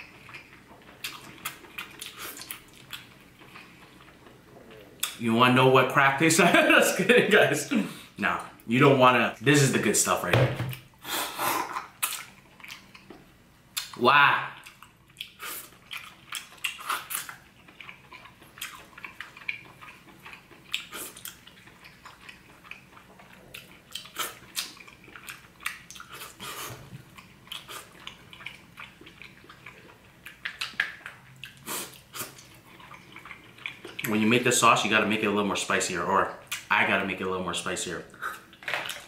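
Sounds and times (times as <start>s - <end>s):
person chewing wetly: 0.0s - 5.2s, 11.9s - 14.0s, 14.6s - 34.2s.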